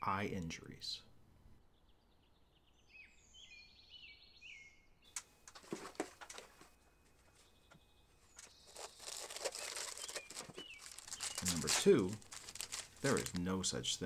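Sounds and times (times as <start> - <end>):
faint bird chirps: 1.6 - 5.2, 6.7 - 11.8
foil packet crinkling: 8.2 - 13.6.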